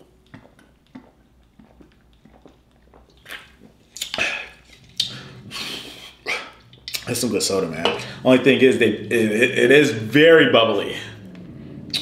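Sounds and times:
man chewing: 0.0 - 7.2
sipping and swallowing soda: 0.0 - 10.1.

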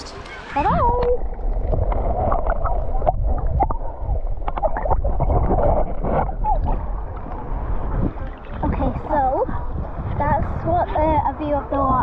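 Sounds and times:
underwater rumble of moving water: 0.0 - 12.0
water bubbling: 0.0 - 12.0.

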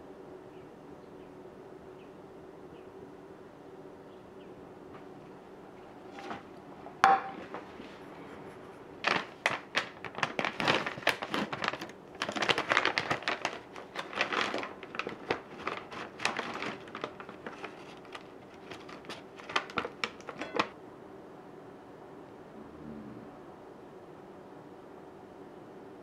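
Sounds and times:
plastic snack bag crackling: 9.0 - 20.7.

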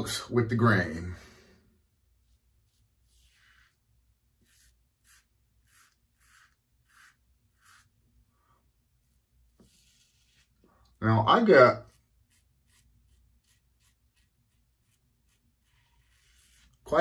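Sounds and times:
razor cutting stubble: 4.5 - 7.9.

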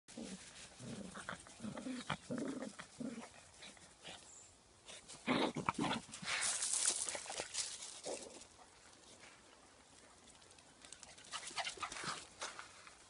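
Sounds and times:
pawing in gravelly sand: 0.1 - 13.0
dog growling: 0.2 - 3.4.

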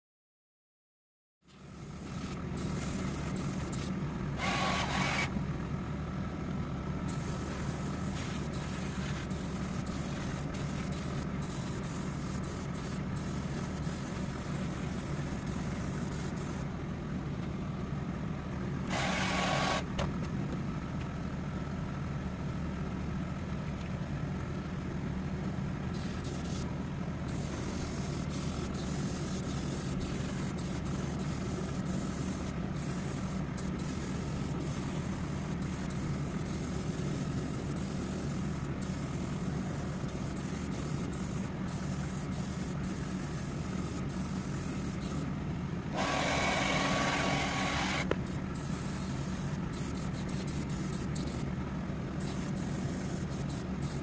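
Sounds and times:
low motor drone: 1.5 - 52.5
airbrush hissing: 1.7 - 5.3, 7.1 - 16.6, 27.3 - 45.2, 46.0 - 51.4, 52.2 - 54.0.

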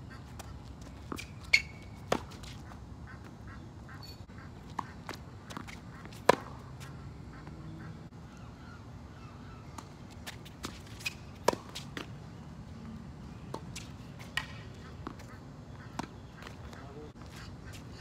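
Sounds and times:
tennis ball bouncing: 0.4 - 2.6, 4.6 - 7.6, 9.7 - 12.1, 13.5 - 16.7
tennis ball struck by rackets: 1.1 - 2.6, 4.7 - 7.0, 9.8 - 12.1.

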